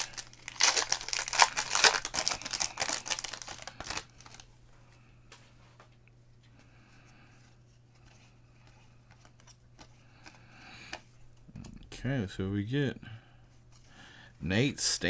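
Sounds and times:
foil pack tearing and crinkling: 0.0 - 4.4.

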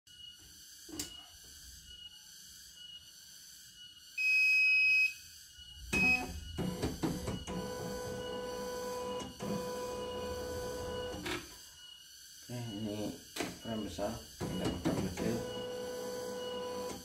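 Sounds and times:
high electronic beeps: 3.9 - 16.9
embroidery machine motor whine: 5.6 - 11.6, 12.5 - 17.0.

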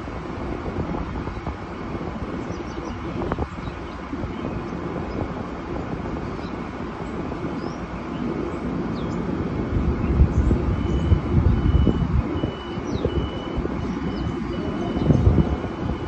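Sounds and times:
low rumble of idling train: 0.0 - 16.0
train door warning beeps: 10.7 - 16.0.

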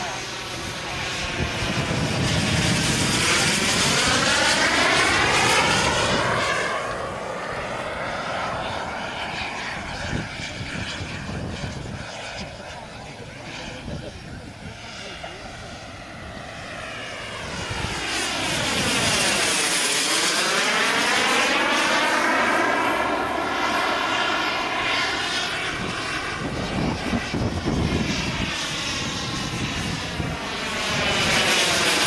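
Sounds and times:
jet passing whoosh: 0.0 - 21.1
jet turbine whine: 0.0 - 32.0.

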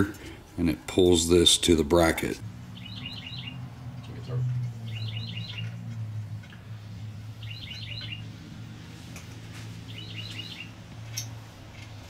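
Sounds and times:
steady low hum: 0.0 - 12.0
high bird-like chirps: 2.8 - 3.6, 4.8 - 5.9, 7.4 - 8.3, 9.8 - 10.8.

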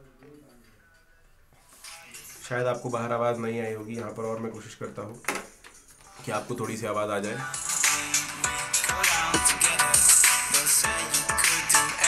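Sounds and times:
song with deep kick drum: 7.5 - 12.0.

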